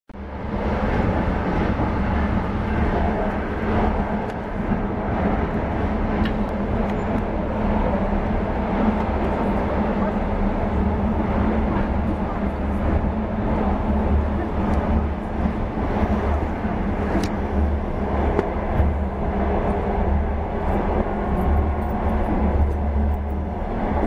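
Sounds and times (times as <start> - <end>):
train rumble inside carriage: 0.1 - 24.0.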